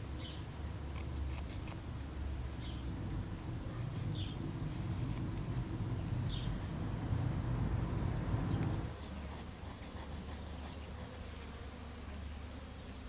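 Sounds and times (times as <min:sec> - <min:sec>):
pencil scratching on wood: 0:00.9 - 0:01.8, 0:03.8 - 0:05.7, 0:07.5 - 0:11.4
low rumble: 0:02.2 - 0:08.9.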